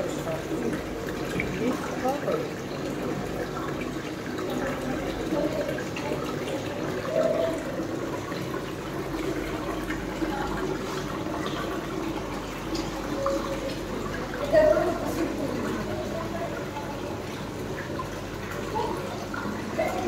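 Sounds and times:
pond water running and splashing: 0.0 - 20.0.

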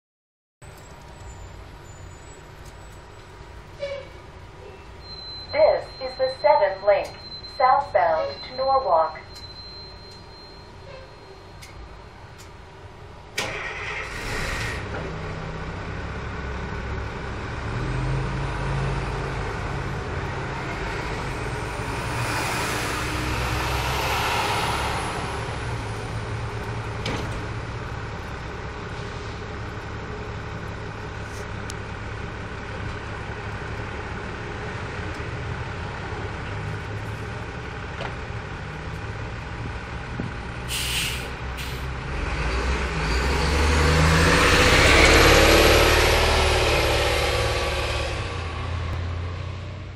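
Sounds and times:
bus engine starting and idling: 0.6 - 49.9
air hiss: 40.7 - 41.8.

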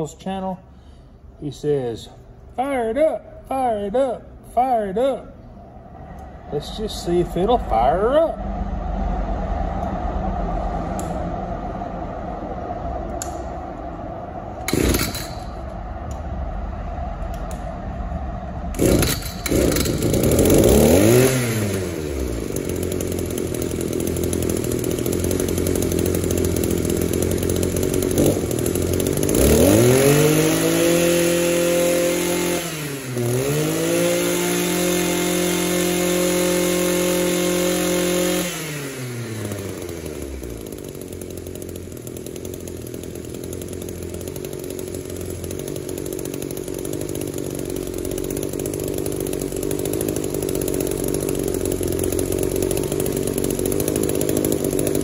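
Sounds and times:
string trimmer engine revving: 14.6 - 15.7, 18.7 - 55.0.

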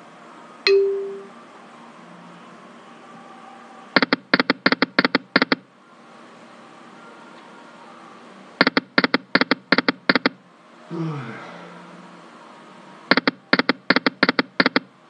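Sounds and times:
faint game background: 3.9 - 5.7, 8.6 - 11.9, 13.0 - 15.0
slot game reel-stop ticks: 13.2 - 14.9.

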